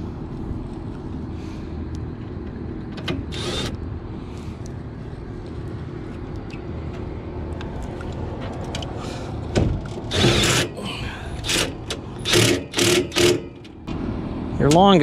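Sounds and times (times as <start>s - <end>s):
cordless drill driving screws: 3.3s - 3.8s, 10.1s - 10.7s, 12.3s - 13.4s.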